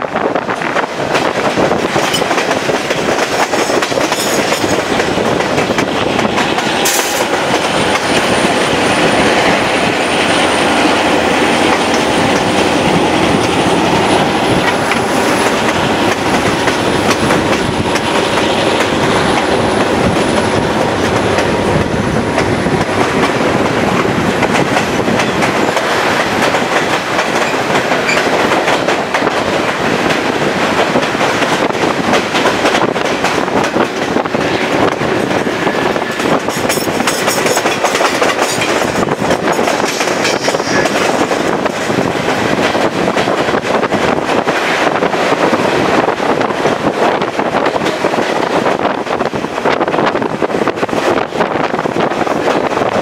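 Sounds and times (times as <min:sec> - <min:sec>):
train wheels rolling on rails: 0:00.0 - 0:53.0.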